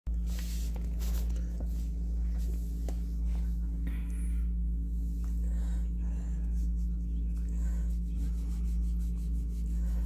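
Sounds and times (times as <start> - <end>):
steady low hum: 0.1 - 10.0
scratchy rustling: 7.8 - 10.0.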